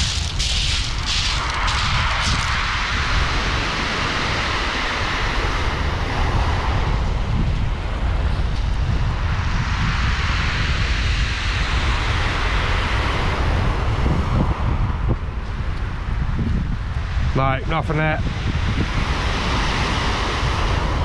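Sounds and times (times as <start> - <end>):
waves on shingle beach: 0.0 - 6.7, 18.9 - 21.0
wind buffeting microphone: 0.0 - 21.0.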